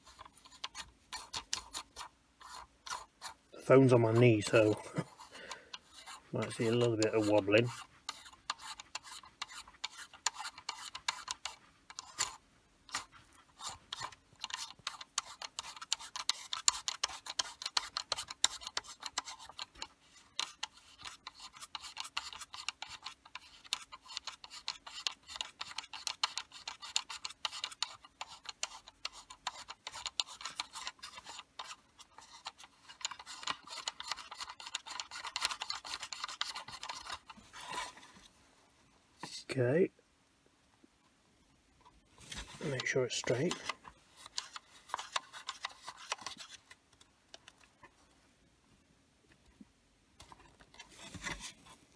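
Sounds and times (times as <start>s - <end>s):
plastic rasping and clicking: 0.0s - 38.3s, 41.8s - 48.0s
fingers rubbing on plastic: 6.0s - 37.9s.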